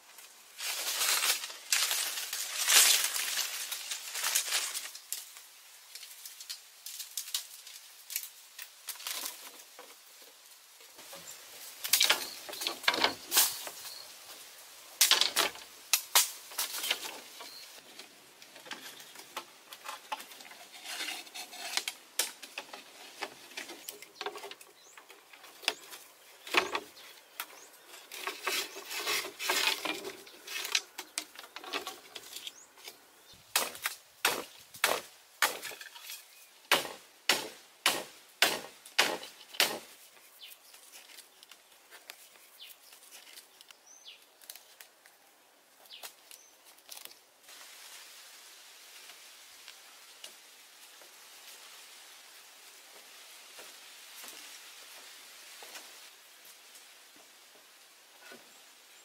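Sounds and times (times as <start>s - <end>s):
bamboo slats rattling: 0.6s - 4.9s, 6.1s - 10.4s, 11.0s - 14.0s, 15.0s - 40.2s
knife chopping bamboo: 33.5s - 35.7s, 36.7s - 39.9s.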